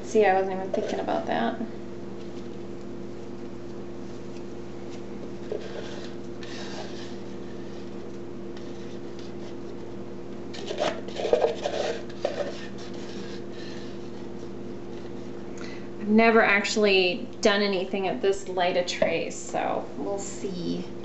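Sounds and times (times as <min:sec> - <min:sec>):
steady low hum: 0:00.0 - 0:21.0
spatula scraping plastic pitcher: 0:05.4 - 0:09.8, 0:10.5 - 0:15.3.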